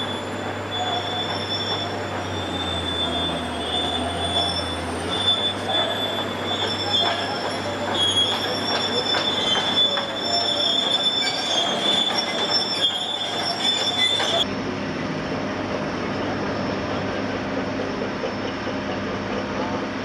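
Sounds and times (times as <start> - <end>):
track links clanking: 0.0 - 14.4
crawler tracks squealing: 0.0 - 14.5.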